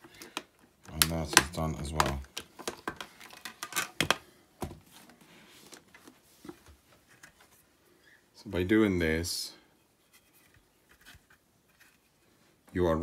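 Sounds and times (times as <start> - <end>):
plastic helmet clicks and taps: 0.0 - 4.7
rustling: 10.0 - 12.6.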